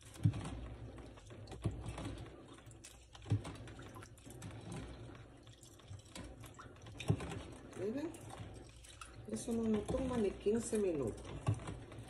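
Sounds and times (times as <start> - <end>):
spoon stirring in plastic pitcher: 0.0 - 12.0
spoon knocking pitcher: 6.6 - 11.8.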